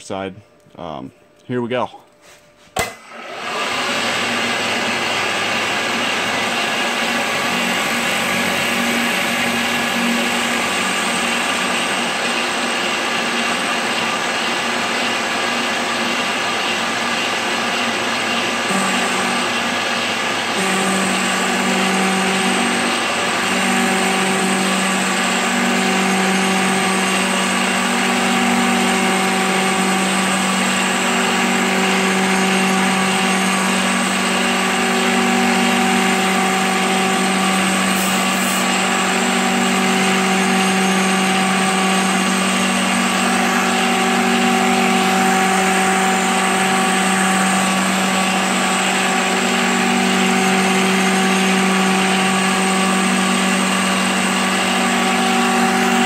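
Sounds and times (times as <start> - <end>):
milling machine hum: 2.8 - 56.0
hiss of metal cutting: 37.4 - 39.1.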